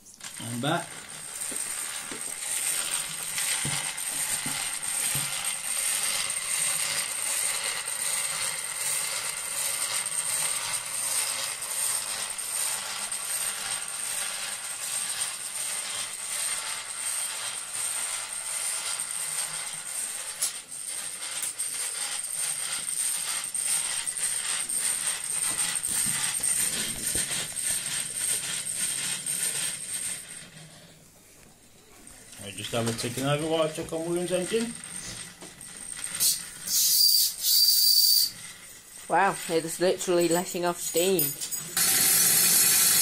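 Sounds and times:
toy steam engine running: 0.2s - 31.0s, 31.8s - 43.0s
thin high hiss: 36.2s - 38.3s.

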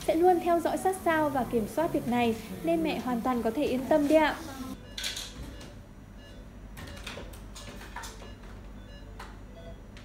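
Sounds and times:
patient monitor beeps: 4.7s - 10.0s.

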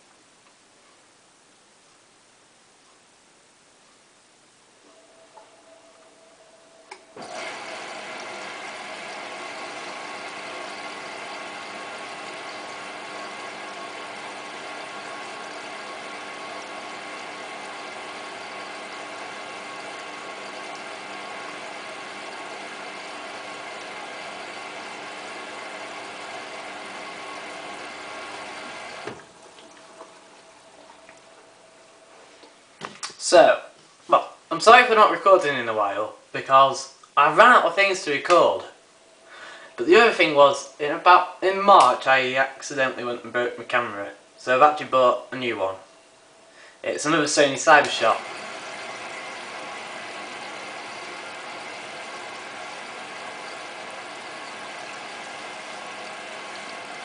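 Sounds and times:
washing machine motor whine: 4.8s - 32.2s, 47.1s - 57.0s.

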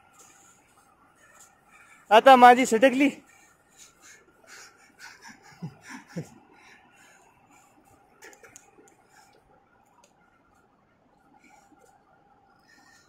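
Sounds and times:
faint background hum: 0.0s - 13.0s
man laughing: 3.8s - 6.4s.

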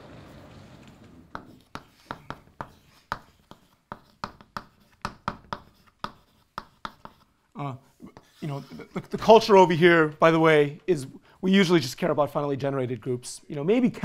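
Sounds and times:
chalk tapping and scratching on board: 1.3s - 7.4s.

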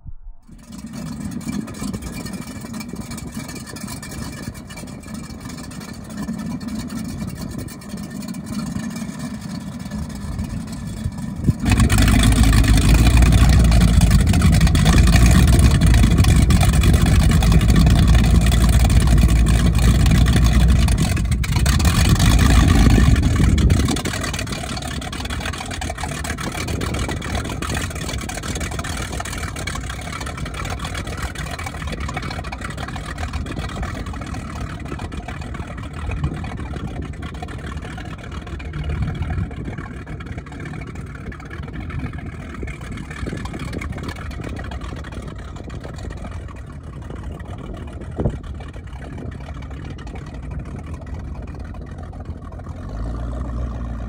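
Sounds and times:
boat engine idling and revving: 0.0s - 54.0s.

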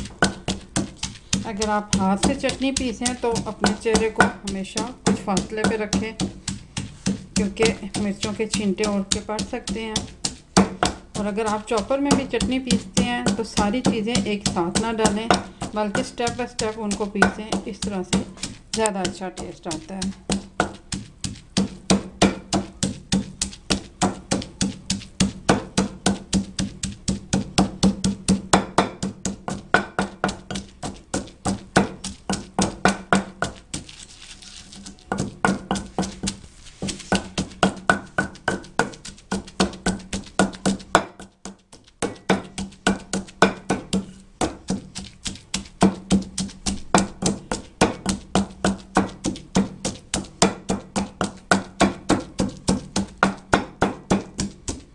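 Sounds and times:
pestle pounding in stone mortar: 0.0s - 54.9s.

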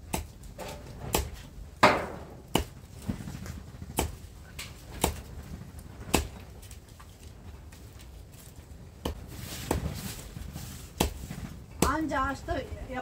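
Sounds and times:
sharp knocks: 0.2s - 2.8s.

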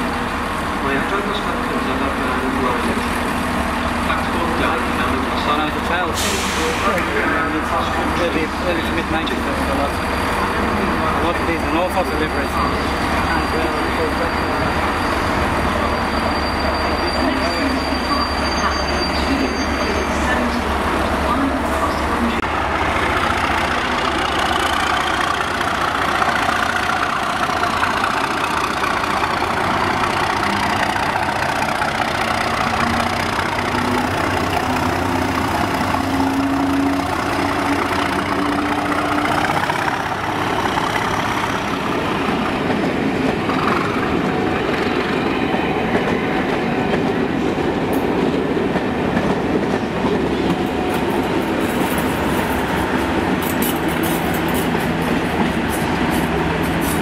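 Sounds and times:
diesel locomotive engine accelerating: 0.0s - 57.0s
train wheels clattering on rails: 22.6s - 57.0s.

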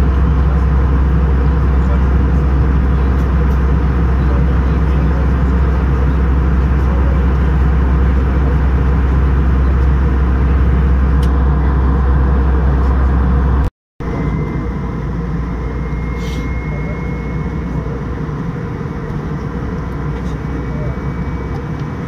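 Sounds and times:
airplane cabin drone: 0.0s - 22.0s
faint high whine: 14.0s - 22.0s.

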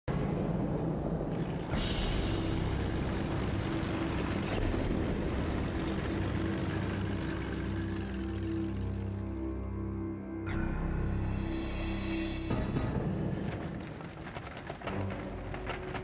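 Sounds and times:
engine-like rumble: 0.1s - 12.6s
low drone: 0.1s - 16.0s.

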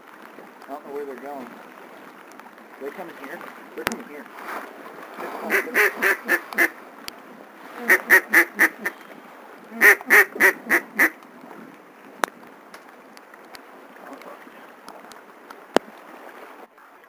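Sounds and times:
duck call quacks: 5.5s - 6.7s, 7.9s - 8.9s, 9.8s - 11.1s.

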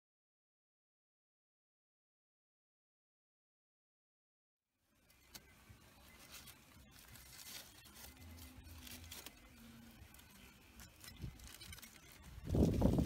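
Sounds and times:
aluminium foil crinkling and tearing: 5.1s - 13.0s.

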